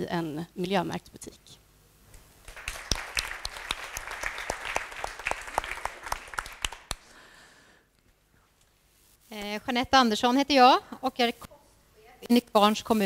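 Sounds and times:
audience applauding: 2.4 - 7.2.

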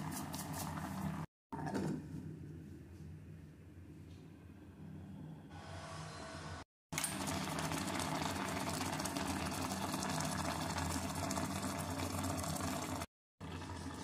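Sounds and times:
water bubbling in a pot: 7.2 - 14.0.

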